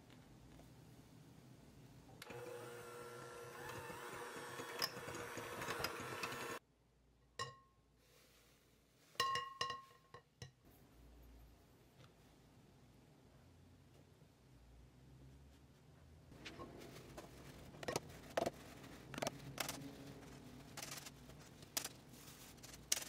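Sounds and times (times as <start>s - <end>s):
electric hand mixer running: 2.2s - 6.6s
metal sieve taps ringing: 9.2s - 10.0s.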